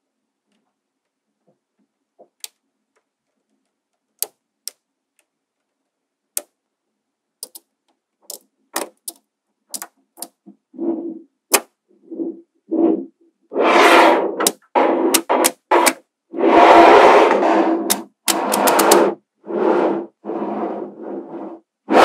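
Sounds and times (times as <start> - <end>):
magnetic balls clicking together: 2.3 - 6.6, 7.4 - 10.4, 17.9 - 19.0.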